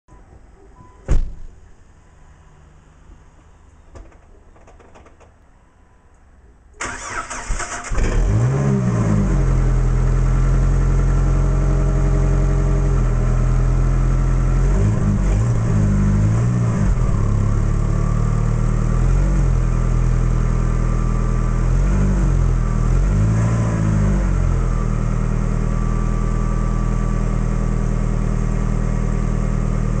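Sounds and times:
car engine starting and idling: 6.8 - 30.0.

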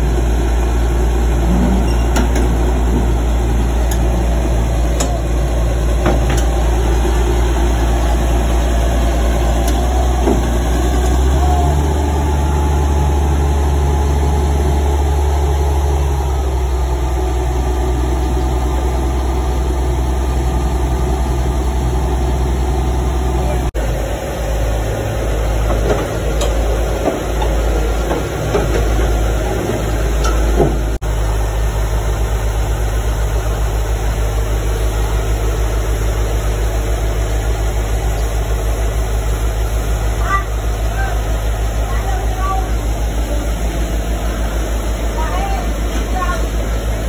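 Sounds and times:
bulldozer diesel engine running: 0.0 - 47.0.

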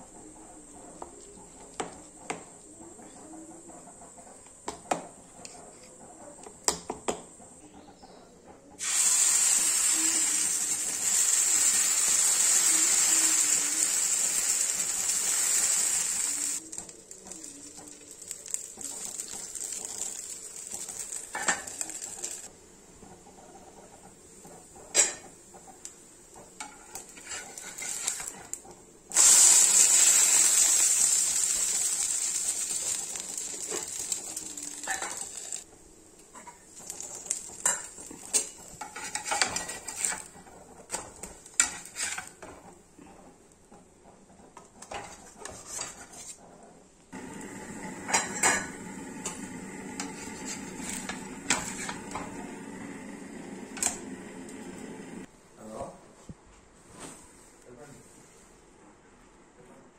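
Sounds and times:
food sizzling: 8.8 - 22.5, 24.3 - 42.7, 47.1 - 55.3.

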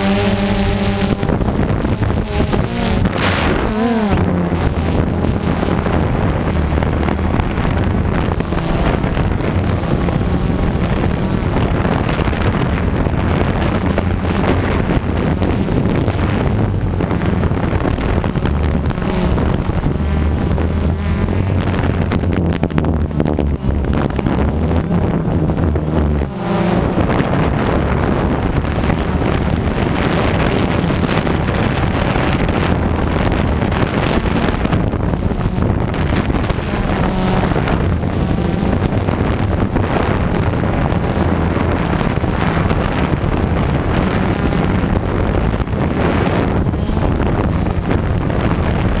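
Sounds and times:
drone propellers whirring: 0.0 - 49.0
wind buffeting microphone: 0.0 - 49.0.

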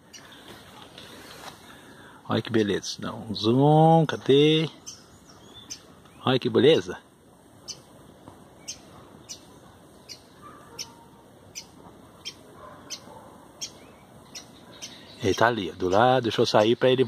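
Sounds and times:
sparrow alarm chips: 8.6 - 17.0.

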